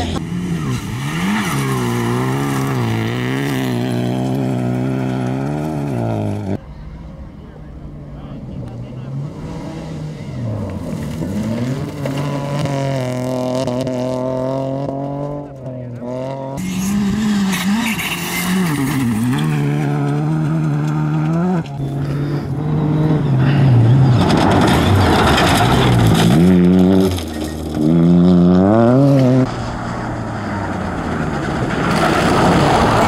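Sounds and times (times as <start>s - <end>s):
rally car engines revving: 0.0s - 33.0s
tyres crunching gravel: 9.6s - 13.2s, 16.6s - 33.0s.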